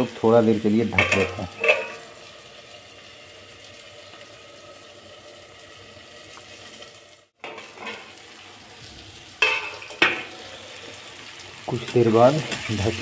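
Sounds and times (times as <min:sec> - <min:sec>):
vegetables sizzling in a pan: 0:00.0 - 0:13.0
metal lid clanking: 0:00.9 - 0:02.2, 0:07.4 - 0:08.1, 0:09.4 - 0:10.3.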